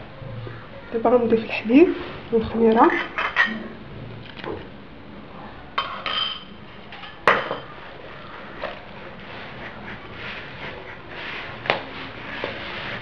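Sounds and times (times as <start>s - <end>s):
bowl clinking against ceramic bowl: 5.8s - 7.7s
hands rustling through flour: 7.8s - 13.0s.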